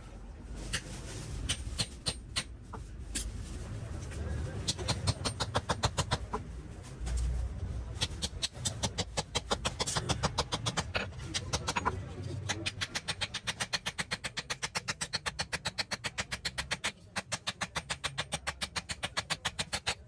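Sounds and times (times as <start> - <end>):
hammer tapping metal pins: 8.0 - 20.0.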